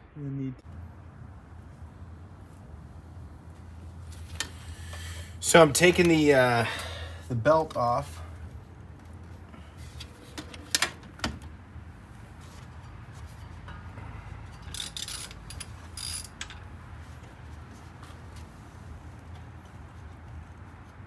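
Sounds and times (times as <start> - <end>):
belt scraping and rubbing: 12.0 - 13.9, 14.5 - 21.0.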